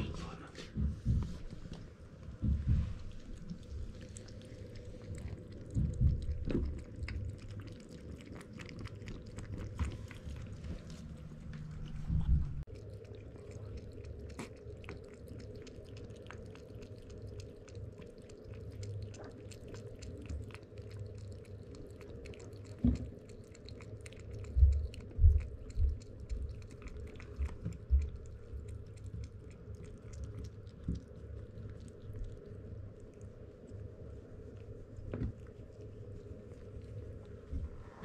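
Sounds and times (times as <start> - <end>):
kitten crunching dry kibble: 0.0 - 38.0
dull low thumps: 0.7 - 1.7, 2.3 - 3.4, 5.6 - 6.9, 11.8 - 12.7, 24.4 - 26.6.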